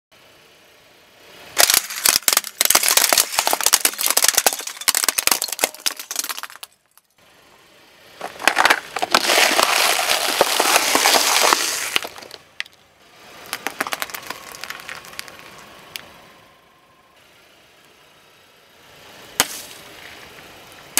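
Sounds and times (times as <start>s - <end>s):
plastic cracking under tyre: 1.6s - 6.7s, 8.2s - 12.8s, 13.4s - 16.1s
cans and crisps crunching: 1.6s - 6.8s, 8.2s - 12.8s, 13.4s - 15.6s.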